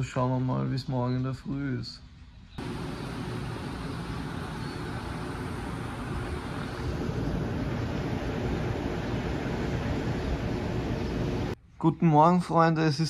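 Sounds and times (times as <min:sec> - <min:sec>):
traffic hum: 0:02.6 - 0:11.6.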